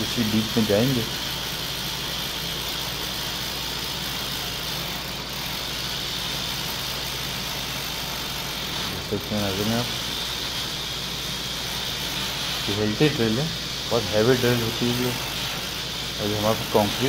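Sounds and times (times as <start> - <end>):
rotary hammer drill boring: 0.0 - 17.0.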